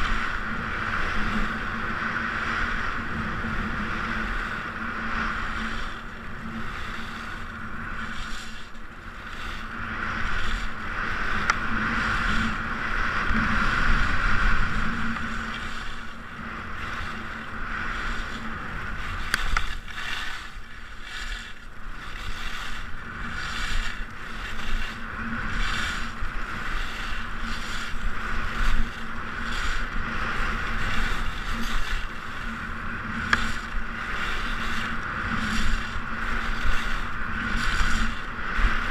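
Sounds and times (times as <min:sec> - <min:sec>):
skis scraping on hard snow: 0:00.0 - 0:38.9
wind rushing over microphone: 0:00.0 - 0:38.9.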